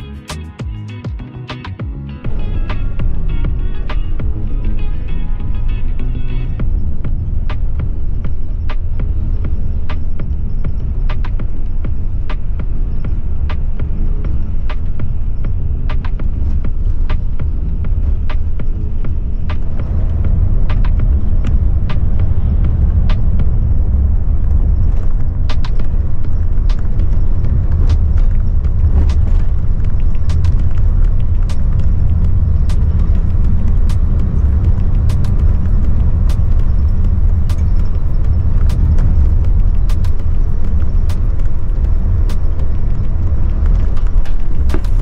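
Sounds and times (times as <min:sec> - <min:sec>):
coach engine and tyres rumbling: 0:00.0 - 0:45.0
sharp clicks and rattles: 0:02.5 - 0:45.0.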